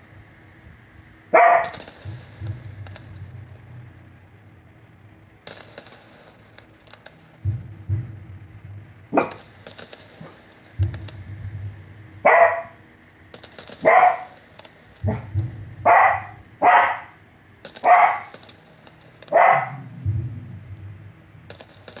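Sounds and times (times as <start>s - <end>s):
dog barking: 1.3s - 1.8s, 9.2s - 9.4s, 12.2s - 12.8s, 13.8s - 14.4s, 15.1s - 17.2s, 17.8s - 18.3s, 19.3s - 19.9s.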